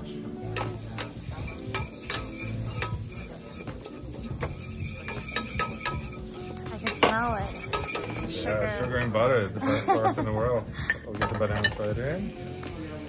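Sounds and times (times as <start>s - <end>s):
metal utensil scraping frying pan: 0.4s - 9.5s, 11.2s - 12.1s.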